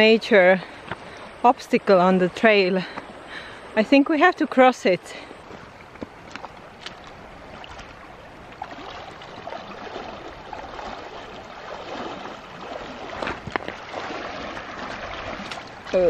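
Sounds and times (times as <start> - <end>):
river current rushing: 0.0 - 16.0
water splashing around legs: 5.4 - 16.0.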